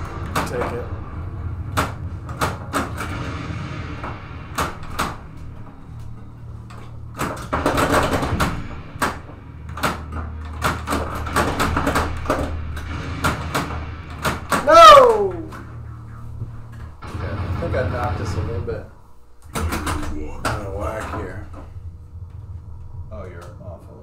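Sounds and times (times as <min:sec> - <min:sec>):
pinball machine clacks: 0:00.0 - 0:06.0, 0:06.6 - 0:14.6, 0:19.4 - 0:21.6
steady low hum: 0:00.0 - 0:24.0.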